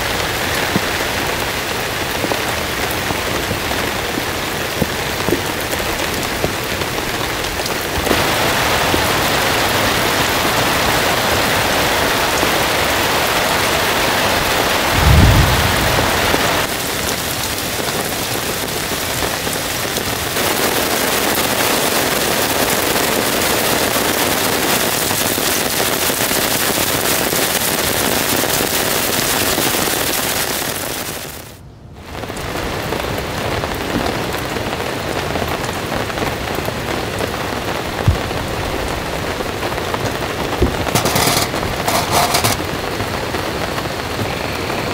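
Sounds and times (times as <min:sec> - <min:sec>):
heavy rain falling: 0:00.0 - 0:44.9
low rumble: 0:14.8 - 0:16.7.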